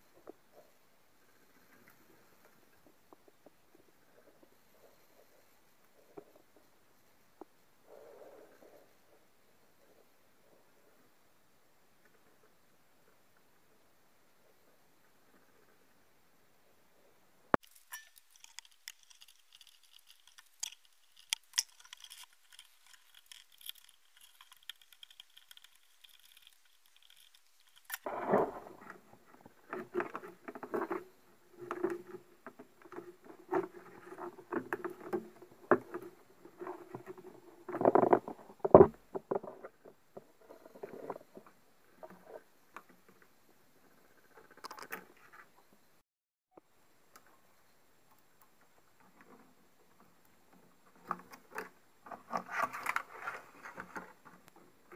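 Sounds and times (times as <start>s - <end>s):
rubbing and scraping: 17.6s - 31.0s
small clicks and scratching: 17.6s - 43.3s, 43.9s - 45.6s, 48.1s - 54.9s.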